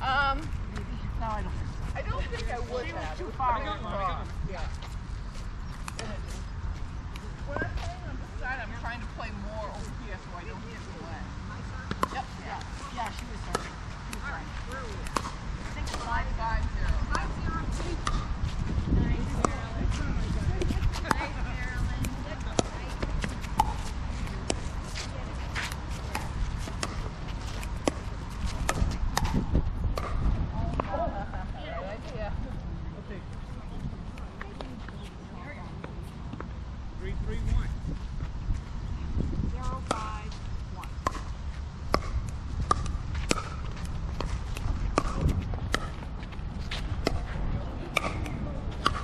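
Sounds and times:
steady low rumble: 0:00.0 - 0:49.0
ball bouncing on court: 0:11.8 - 0:24.8, 0:25.6 - 0:31.0, 0:39.6 - 0:49.0.

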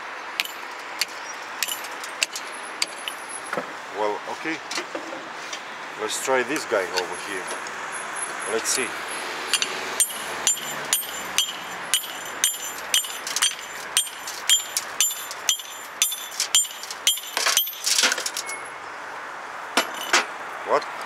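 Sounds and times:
hammer striking steel chisel: 0:09.6 - 0:17.8.

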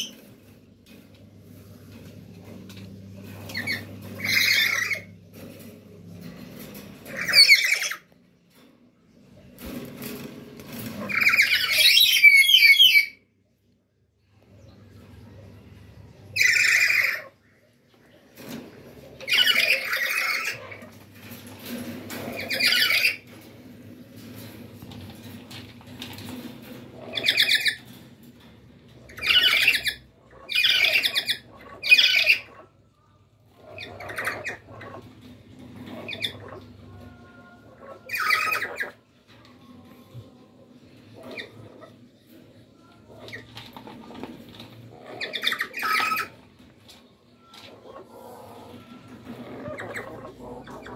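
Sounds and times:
parrot screeching squawks: 0:03.5 - 0:05.1, 0:07.1 - 0:08.0, 0:11.1 - 0:13.2, 0:16.4 - 0:17.4, 0:19.2 - 0:20.9, 0:22.4 - 0:23.2, 0:29.1 - 0:32.6, 0:37.7 - 0:39.0, 0:45.1 - 0:46.4.

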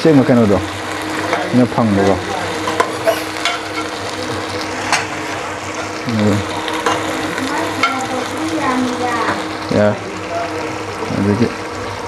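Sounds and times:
pork sizzling in a pot: 0:00.0 - 0:12.0.

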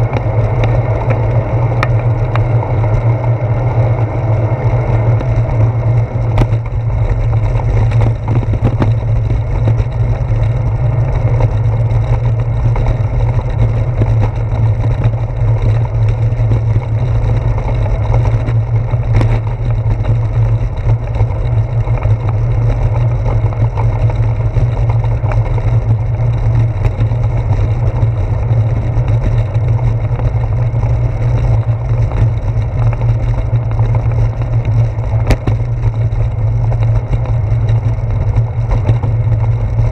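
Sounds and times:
wind and road rumble: 0:00.0 - 0:39.9
sharp knocks from road bumps: 0:06.2 - 0:10.6, 0:11.2 - 0:25.8, 0:28.8 - 0:39.9.

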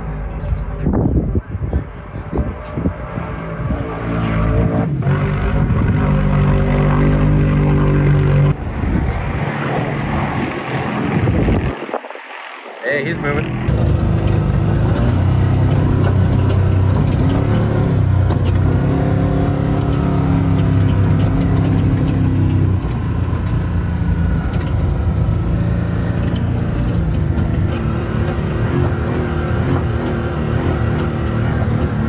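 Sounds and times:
truck engine running hard: 0:00.0 - 0:11.0, 0:13.5 - 0:32.0
cab and chassis rattling: 0:13.5 - 0:32.0.

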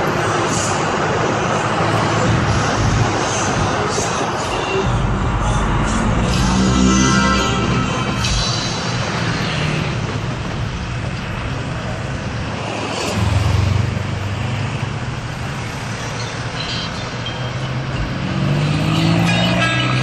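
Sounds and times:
road and traffic noise: 0:00.0 - 0:20.0.

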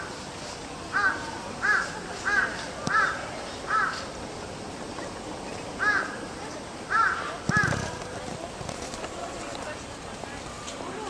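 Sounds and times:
crow cawing: 0:01.0 - 0:04.0, 0:05.8 - 0:06.2, 0:06.9 - 0:07.8.

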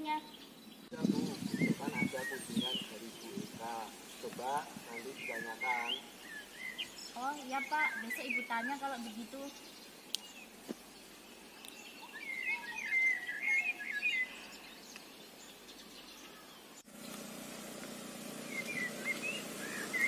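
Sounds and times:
birds chirping: 0:00.0 - 0:20.0
motor scooter engine hum: 0:16.9 - 0:20.0.

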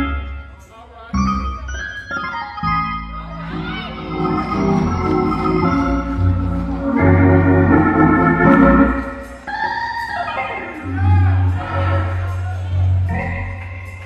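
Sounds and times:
gospel organ chords: 0:01.2 - 0:09.6.

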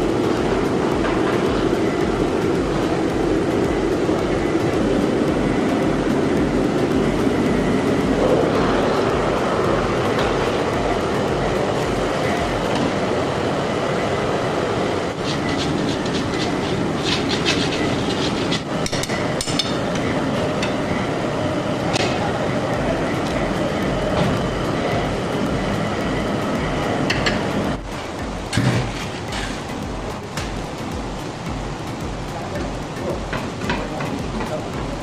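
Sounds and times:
loud mechanical motor noise: 0:00.0 - 0:35.0
metal ticks and scrapes on steel: 0:15.2 - 0:20.8.

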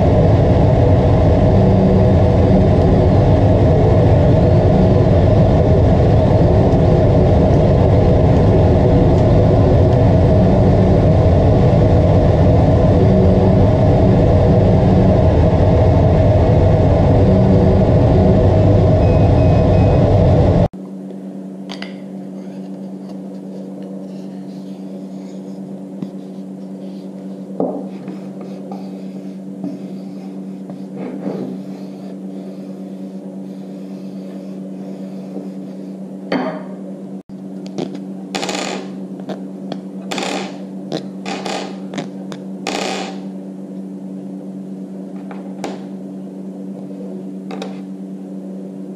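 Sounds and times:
laser cutter running: 0:00.0 - 0:33.5
steady hum: 0:00.0 - 0:48.9.

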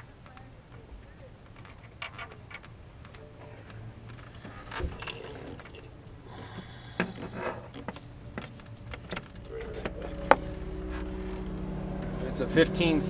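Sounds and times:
low steady hum: 0:00.0 - 0:13.0
metal parts clicking and knocking: 0:01.5 - 0:03.2.

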